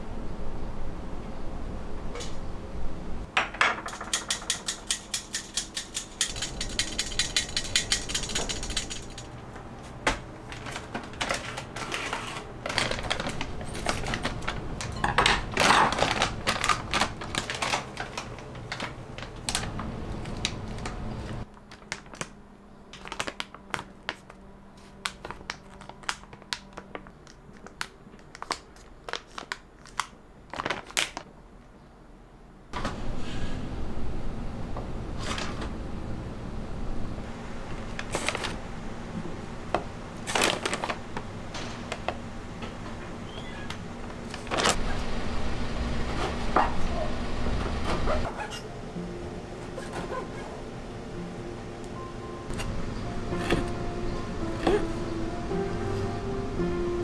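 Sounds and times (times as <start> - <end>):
plastic bag crinkling: 10.6 - 31.3, 40.2 - 41.2.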